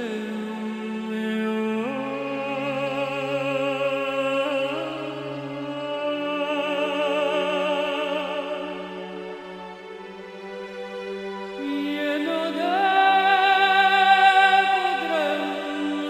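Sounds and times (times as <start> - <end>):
woman singing with vibrato: 11.6 - 16.0.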